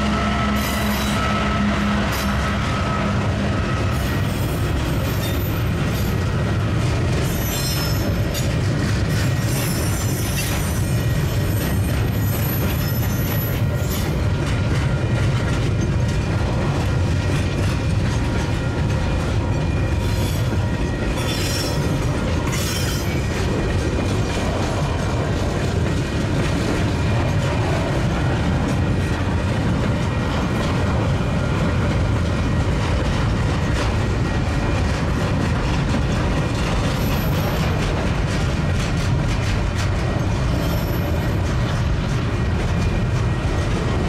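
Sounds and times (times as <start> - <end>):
wheels rumbling on rail: 0.0 - 44.0
high-pitched wheel squeal: 7.2 - 8.4, 21.2 - 21.9, 22.5 - 23.3.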